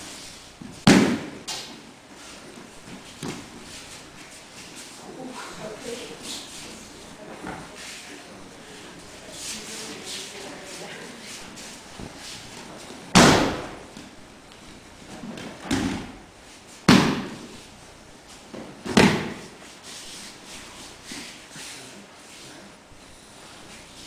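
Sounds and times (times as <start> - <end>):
body thudding onto gym mat: 13.1 - 14.0, 15.1 - 16.2, 16.9 - 17.5, 18.6 - 19.5.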